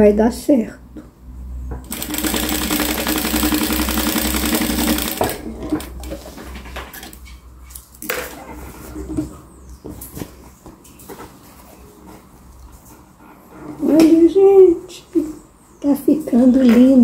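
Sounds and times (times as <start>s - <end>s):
sewing machine stitching: 1.8s - 6.3s.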